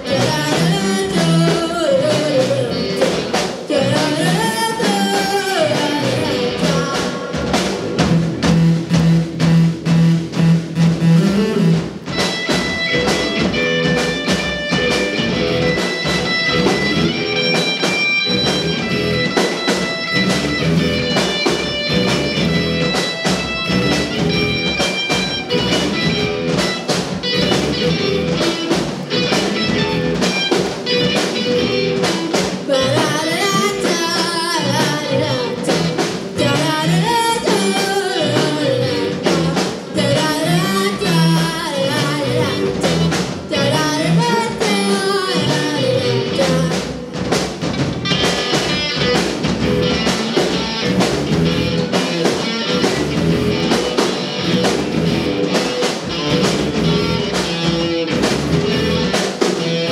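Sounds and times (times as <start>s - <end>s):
person singing: 0.0s - 7.7s, 32.5s - 47.1s
rock band playing: 0.0s - 59.9s.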